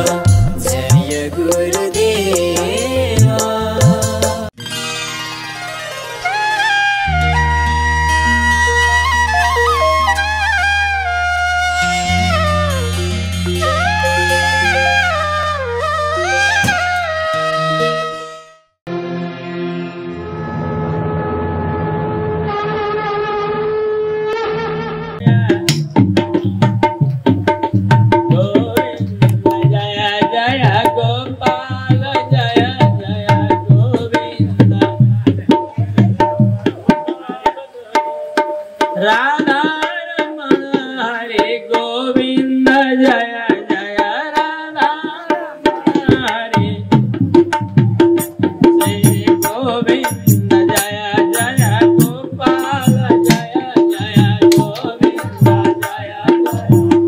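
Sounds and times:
tabla beat: 0.0s - 4.5s, 25.2s - 57.0s.

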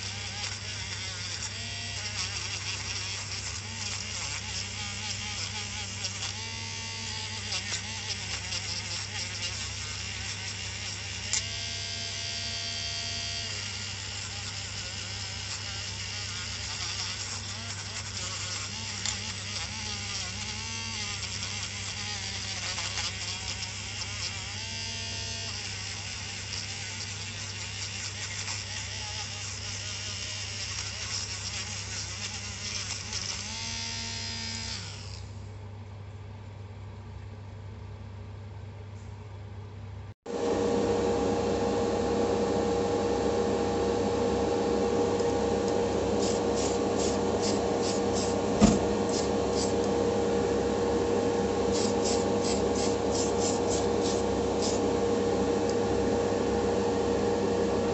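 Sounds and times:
airbrush compressor humming: 0.0s - 35.4s, 40.3s - 57.9s
airbrush spraying hiss: 51.7s - 54.8s.

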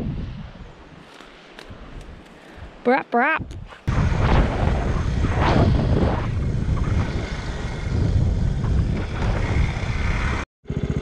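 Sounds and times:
wind rumble on microphone: 0.0s - 2.8s, 3.4s - 11.0s
motorcycle engine running: 6.4s - 11.0s.

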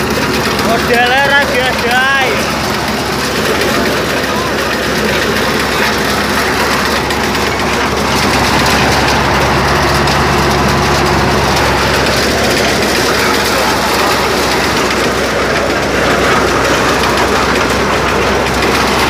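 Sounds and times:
corn sheller running: 0.0s - 19.0s.

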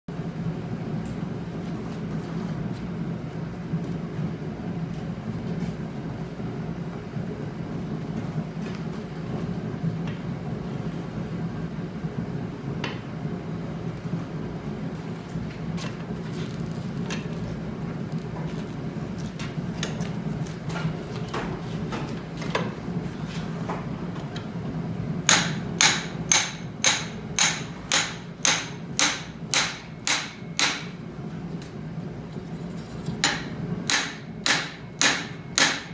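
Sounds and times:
hammer striking hot steel: 25.3s - 31.0s, 33.1s - 35.9s.

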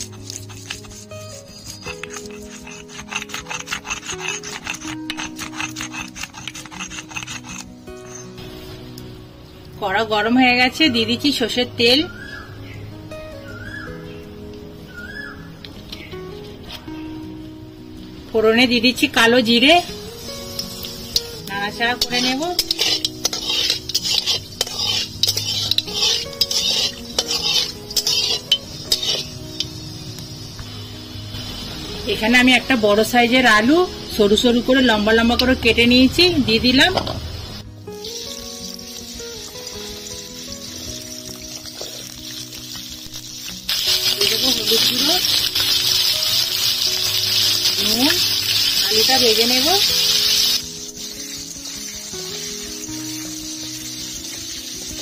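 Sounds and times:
stone roller grinding on stone slab: 0.0s - 7.8s, 22.0s - 29.3s
steel spatula scraping a pan: 0.0s - 8.7s, 20.2s - 29.8s
seeds sizzling in hot oil: 0.0s - 55.0s.

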